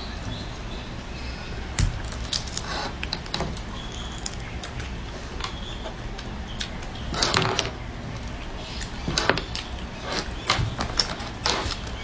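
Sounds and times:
shells crackling as peeled: 1.8 - 5.5.

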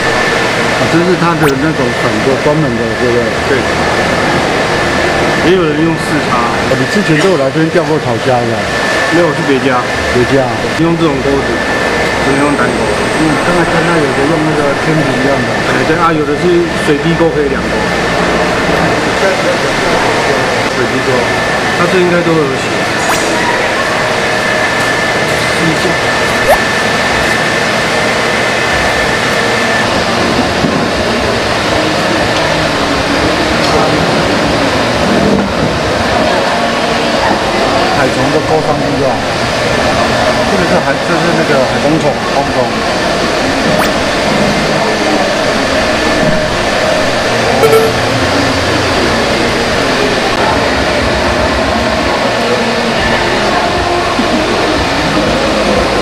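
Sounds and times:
loud mechanical running noise: 0.0 - 56.0
short sharp sound: 47.6 - 48.2
faint high whine: 47.6 - 48.8.

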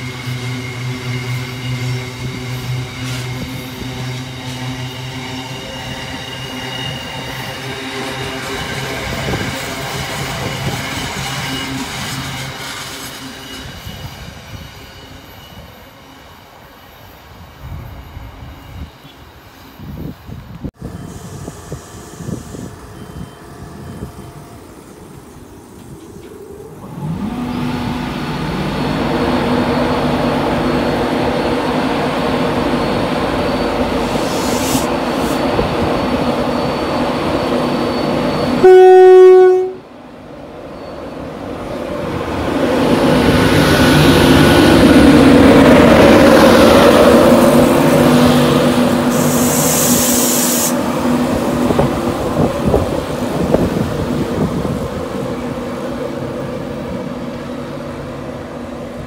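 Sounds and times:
train pulling away: 0.0 - 59.0
locomotive electrical hum: 20.8 - 41.5
train horn blast: 38.5 - 40.0
short high hiss: 49.1 - 50.8.

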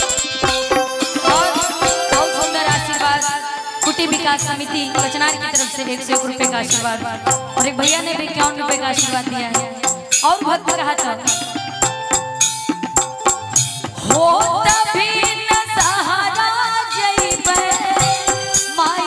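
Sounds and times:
rattling percussion strikes: 0.0 - 19.0
melody with pitch slides: 0.3 - 5.7.

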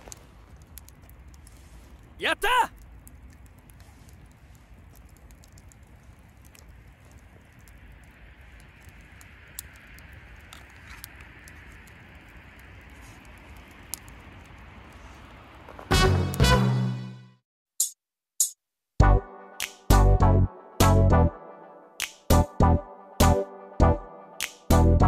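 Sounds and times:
fire hiss: 0.0 - 16.7
fire popping: 0.0 - 16.7
wood fire crackling: 0.0 - 17.0.

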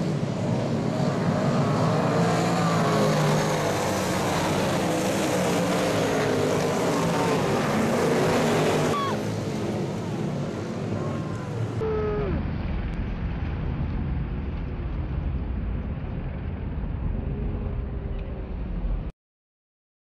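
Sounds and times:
race car passing by: 0.0 - 11.8
race car engines rumbling: 0.0 - 19.1.

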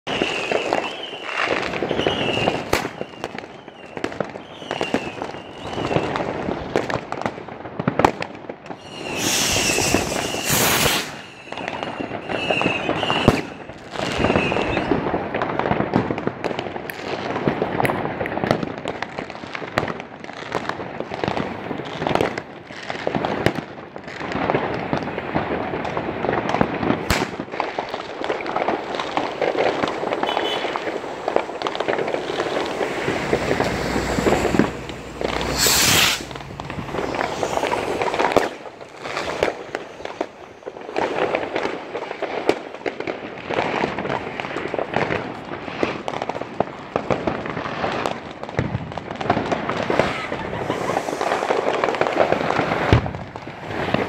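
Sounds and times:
fireworks crackling and banging: 0.0 - 54.0
loud hissing rush: 9.1 - 11.1, 32.1 - 38.7, 50.2 - 51.8.

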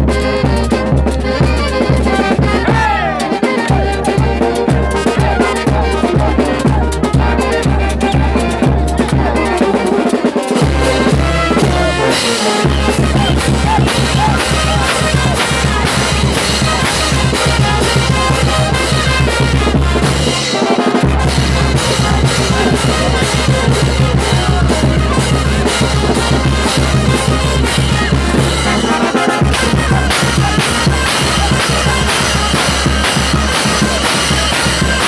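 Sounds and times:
brass band playing dance music: 0.0 - 35.0
drum beat: 0.0 - 35.0
sousaphone bass line: 0.0 - 35.0.

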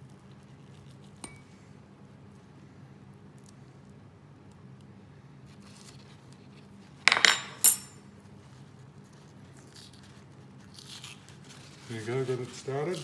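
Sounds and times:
metal fork clattering: 7.1 - 8.0.

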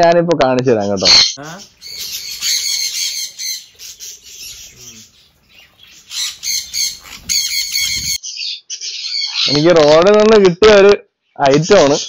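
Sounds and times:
parrots chirping and squawking: 0.8 - 10.0.

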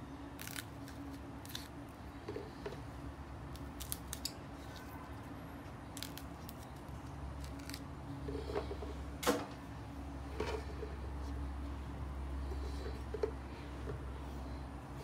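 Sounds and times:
steady low hum: 0.0 - 15.0
pea pods snapping: 0.4 - 1.7, 3.5 - 4.3, 5.9 - 7.8.

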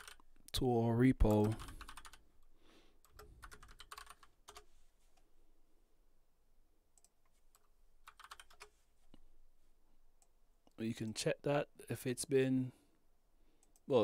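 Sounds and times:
faint keyboard typing: 0.0 - 0.6, 1.2 - 5.3, 6.9 - 9.2, 13.6 - 14.0.

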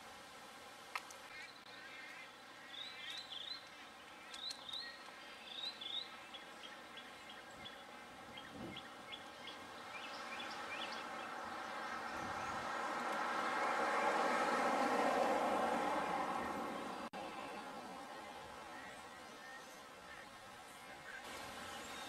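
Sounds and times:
birds chirping: 1.0 - 22.0
engine noise: 9.5 - 19.2.

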